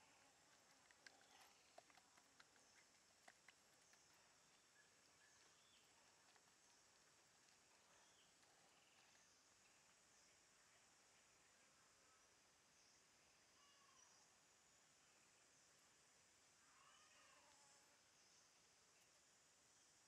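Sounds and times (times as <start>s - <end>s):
soft ticks: 0.0s - 10.0s
faint outdoor hiss: 0.0s - 20.0s.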